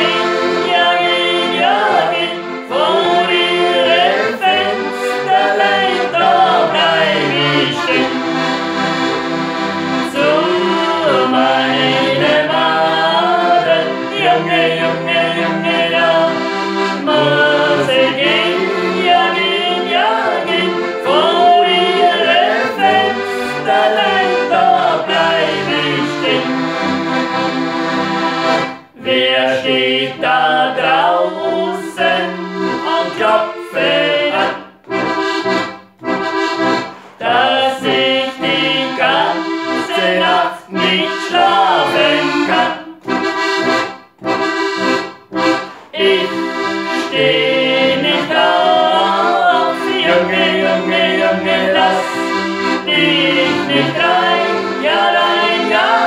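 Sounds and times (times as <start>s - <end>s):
woman and man singing: 0.0s - 8.1s, 10.0s - 16.4s, 17.0s - 26.5s, 29.0s - 34.6s, 37.2s - 43.0s, 47.0s - 52.3s, 52.9s - 56.0s
accordions playing: 0.0s - 56.0s.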